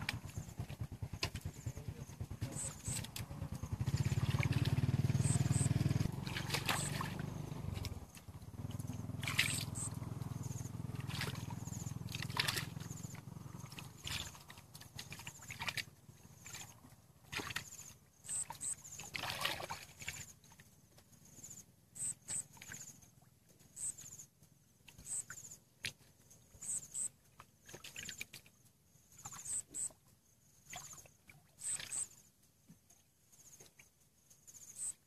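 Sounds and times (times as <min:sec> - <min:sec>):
hands splashing in muddy water: 0:02.6 - 0:08.3, 0:11.0 - 0:17.9, 0:19.0 - 0:20.3
short high-pitched chirps: 0:05.1 - 0:05.8, 0:09.5 - 0:10.0, 0:18.2 - 0:18.8, 0:22.0 - 0:22.6, 0:23.8 - 0:24.1, 0:26.6 - 0:27.1, 0:31.6 - 0:32.2, 0:34.7 - 0:35.0.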